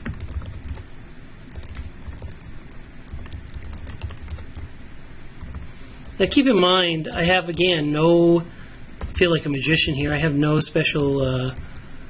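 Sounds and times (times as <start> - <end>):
computer keyboard clicks: 0.0 - 0.8, 1.5 - 2.5, 3.1 - 4.7, 5.4 - 6.2.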